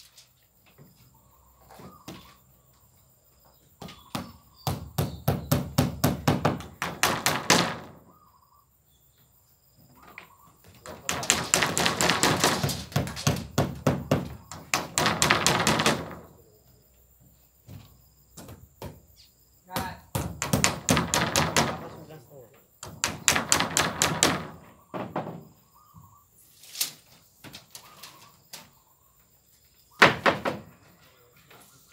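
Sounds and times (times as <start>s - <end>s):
hammer driving nails into wood: 4.1s - 8.0s, 10.8s - 16.2s, 19.8s - 21.9s, 22.8s - 24.6s.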